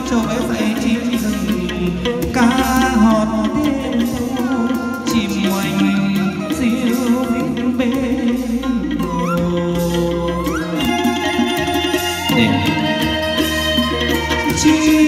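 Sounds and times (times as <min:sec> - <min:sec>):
instrumental backing music: 0:00.0 - 0:15.0
man singing into a microphone: 0:00.0 - 0:15.0.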